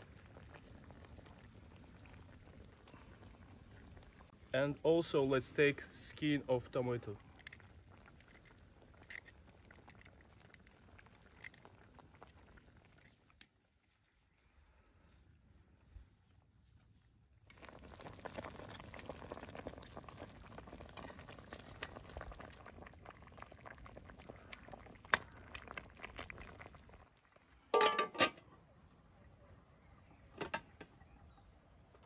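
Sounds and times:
stew bubbling and crackling: 0.0 - 32.0
metal pot clanking: 27.7 - 28.5.

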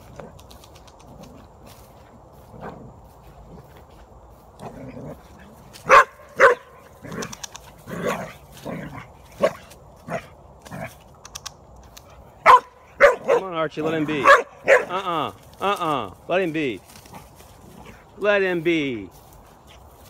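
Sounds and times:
dog barking: 5.8 - 6.8, 12.4 - 13.5, 14.2 - 15.0.

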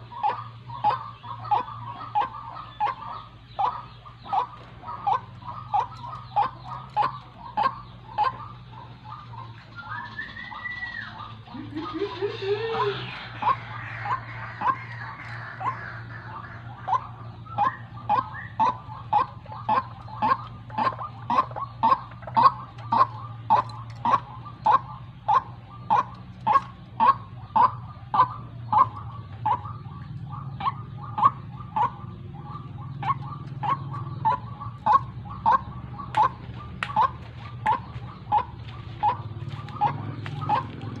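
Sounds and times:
low steady hum: 0.0 - 41.0
waterhen calling: 0.0 - 41.0.

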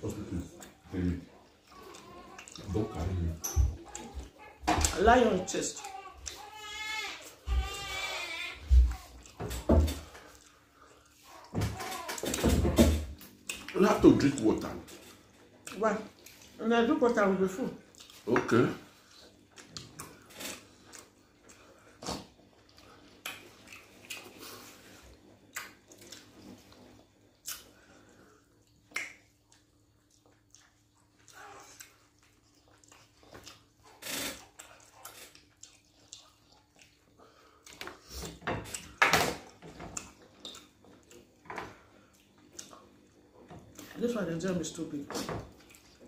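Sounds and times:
chewing: 0.0 - 5.0, 5.6 - 7.8, 8.8 - 12.4, 13.2 - 44.1, 45.1 - 46.0
lip smacks: 19.5 - 24.5, 25.5 - 26.5, 27.4 - 27.9, 28.6 - 41.3.

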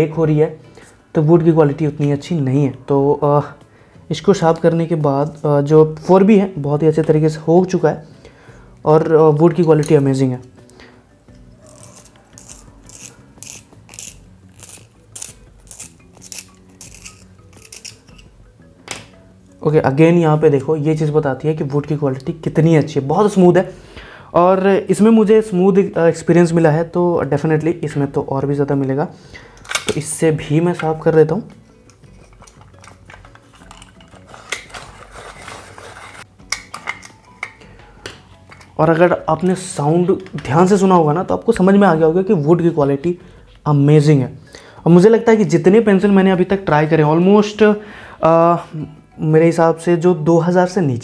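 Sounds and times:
pencil sharpener scraping wood: 11.6 - 18.3, 31.9 - 36.3.

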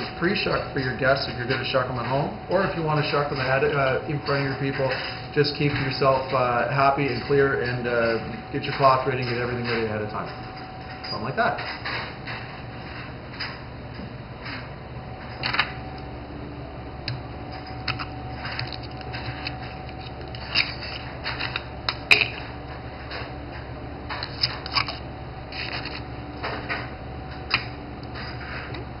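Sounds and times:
oyster knife scraping shell: 18.0 - 21.6, 24.2 - 26.0.

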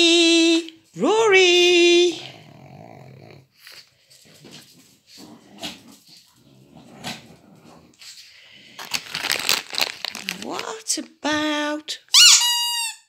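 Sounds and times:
small dog making low vocal sounds: 1.9 - 3.8
scratchy rustling noise: 3.7 - 10.7.

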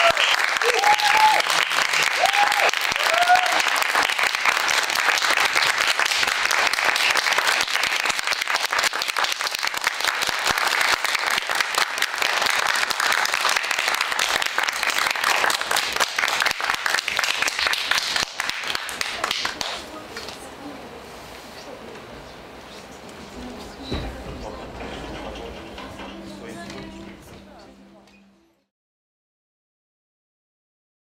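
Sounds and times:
audience applauding: 0.0 - 19.9.

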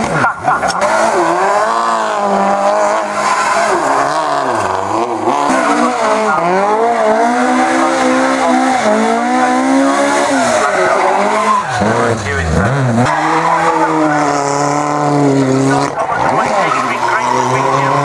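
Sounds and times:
rally car engines revving: 0.0 - 18.0.

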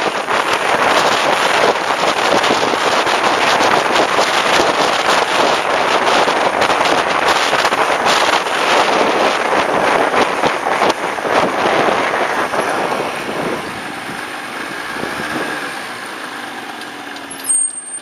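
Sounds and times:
wind buffeting microphone: 0.0 - 16.1
small engines humming: 9.0 - 18.0.

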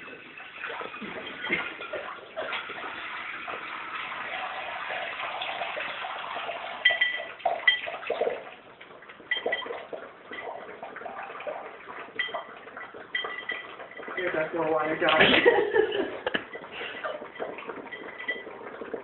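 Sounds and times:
puppies lapping water: 0.0 - 19.0
water poured into metal bowl: 0.0 - 19.0
metal bowl clinking: 6.7 - 8.3, 9.2 - 10.7, 12.1 - 18.6.

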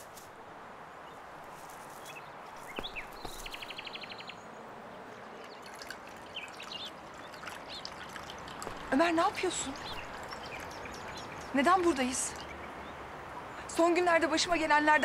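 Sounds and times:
birds chirping: 0.0 - 15.0
bird trill: 2.0 - 4.4, 5.4 - 8.6, 9.3 - 13.5.

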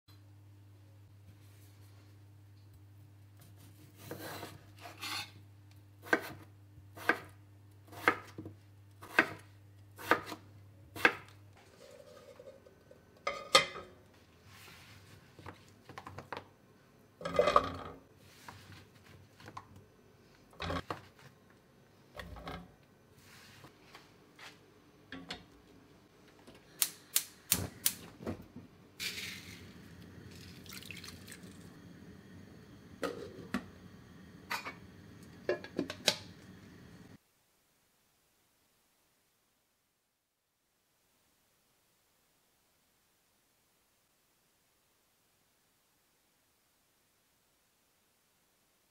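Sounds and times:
salt pouring hiss: 29.0 - 32.5.

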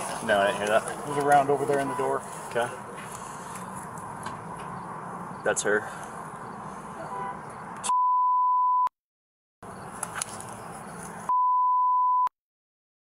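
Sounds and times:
censor bleep: 7.8 - 8.9, 11.3 - 12.3.

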